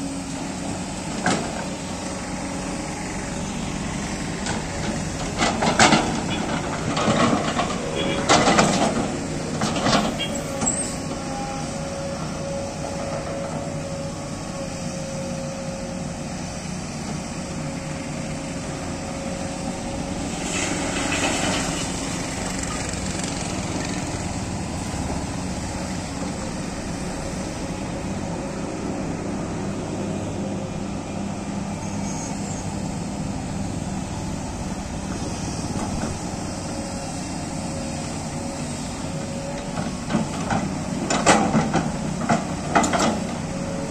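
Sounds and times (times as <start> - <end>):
excavator engine and hydraulics: 0.0 - 43.9.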